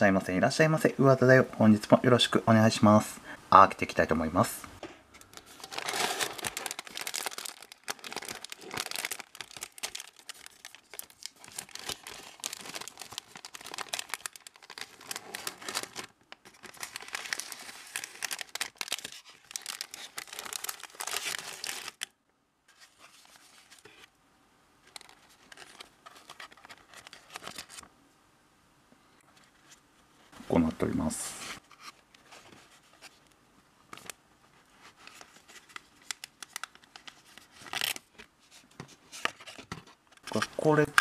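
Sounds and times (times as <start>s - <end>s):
plastic wrapper crinkling and tearing: 5.2s - 24.1s, 24.8s - 27.9s, 34.8s - 41.0s.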